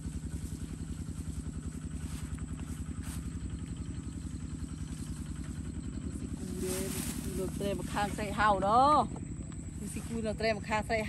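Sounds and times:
small engine idling: 0.0s - 11.0s.

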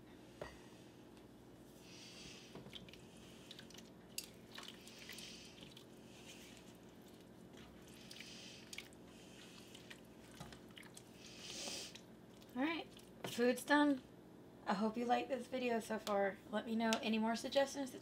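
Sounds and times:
spatula stirring wet food: 1.9s - 13.4s.

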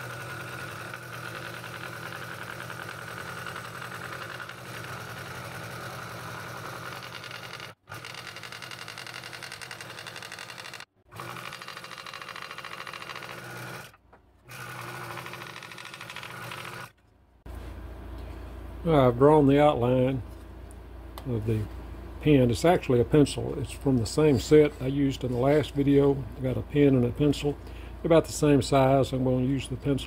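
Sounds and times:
scroll saw cutting wood: 0.0s - 17.0s.

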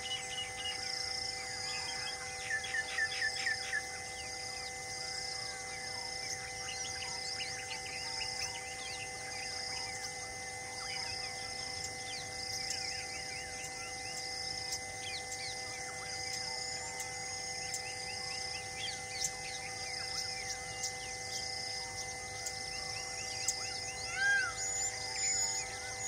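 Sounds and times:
high pulsing bird call: 0.0s - 26.0s
steady hum of held tones: 0.0s - 26.0s.

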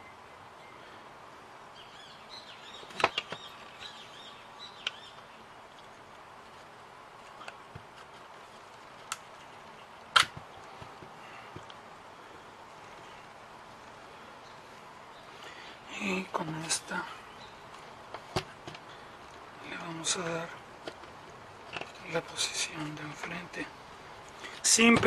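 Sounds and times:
wooden parts clicking and knocking: 2.9s - 3.6s, 20.8s - 22.1s.

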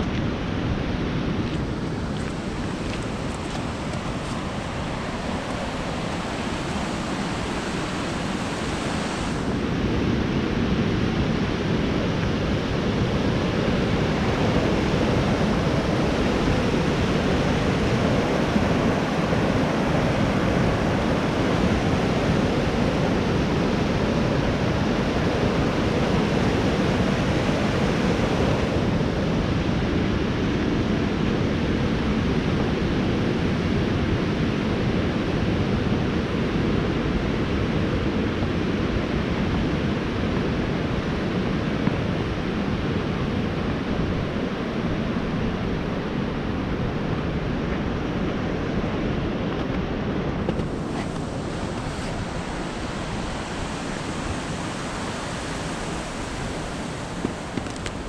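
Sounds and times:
creek water rushing over rapids: 0.0s - 9.8s, 36.6s - 58.0s.

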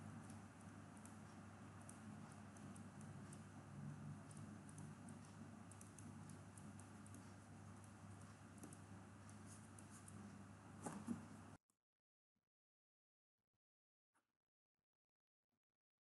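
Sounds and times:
stylus ticking on pen tablet: 0.0s - 10.6s
faint room hum: 0.0s - 11.6s.

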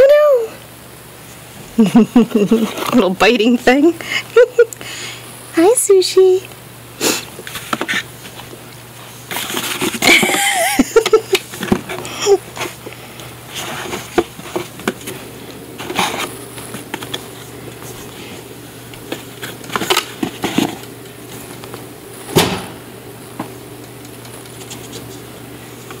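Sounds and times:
steady low hum: 0.0s - 26.0s
cardboard box rustling and scraping: 7.4s - 10.4s, 13.5s - 18.4s, 19.1s - 20.8s.

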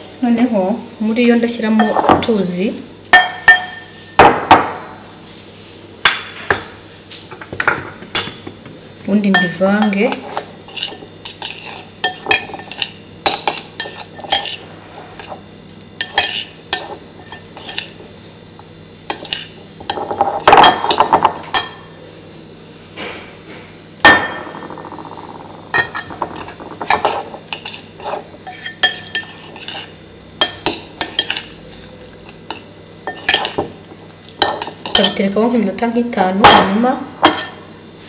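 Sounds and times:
spoon tapping bowl ringing: 3.2s - 3.9s, 9.3s - 10.1s
metal spoon scraping in a ceramic bowl: 9.4s - 15.4s, 16.0s - 18.0s, 19.1s - 21.0s, 25.8s - 33.6s, 34.4s - 35.2s.

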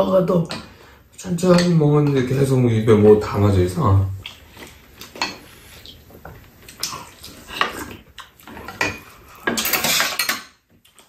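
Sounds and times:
utensils clinking on pan and bowls: 8.5s - 10.6s.

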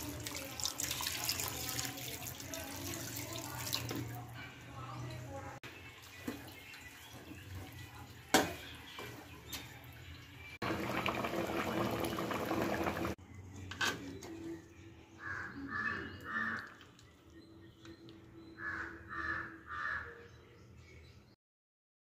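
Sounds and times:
thick gravy bubbling: 0.0s - 4.3s, 10.6s - 13.2s
crow cawing: 15.2s - 16.8s, 18.6s - 20.2s.

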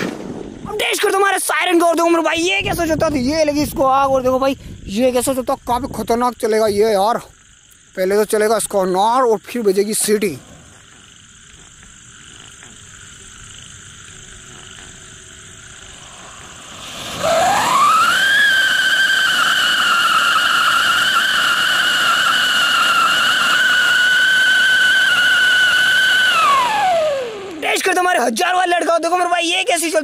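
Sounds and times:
hiss of firework sparks: 15.6s - 27.6s
firework whistle rising in pitch: 16.0s - 27.6s.

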